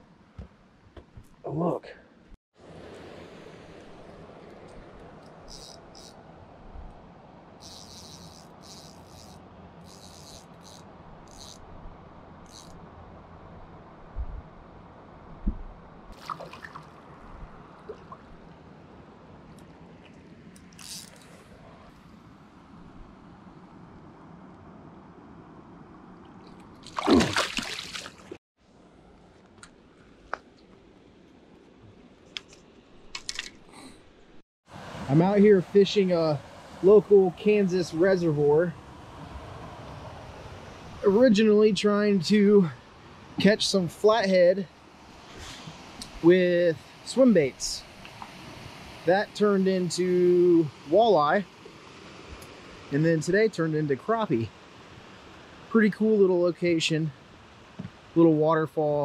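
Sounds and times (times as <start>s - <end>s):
insect buzzing: 5.1s - 13.2s, 20.6s - 21.4s
water running at a spillway: 16.1s - 21.4s, 26.3s - 28.4s, 34.7s - 39.3s, 40.4s - 59.0s
loud splash: 16.2s - 17.0s, 26.8s - 28.4s.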